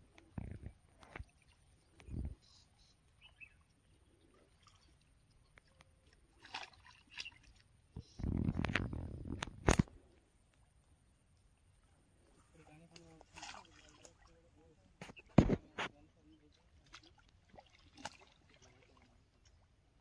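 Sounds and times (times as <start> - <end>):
water sloshing and splashing: 0.2 - 2.1, 3.2 - 10.0, 11.6 - 20.0
faint bird chirps: 1.3 - 6.0, 6.9 - 8.3.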